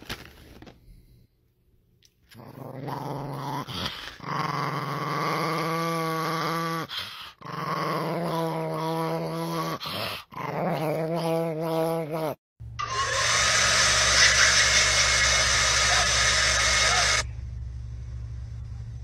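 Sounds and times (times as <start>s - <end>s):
small dog growling: 2.3s - 12.4s
low hum: 12.6s - 19.0s
vacuum cleaner running: 12.8s - 17.3s.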